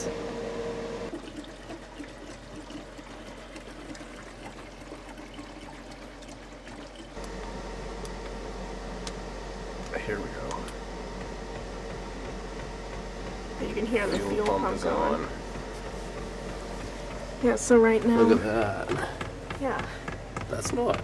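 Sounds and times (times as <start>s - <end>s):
electrical hum: 0.0s - 3.7s, 6.2s - 21.0s
liquid pouring: 1.1s - 7.2s.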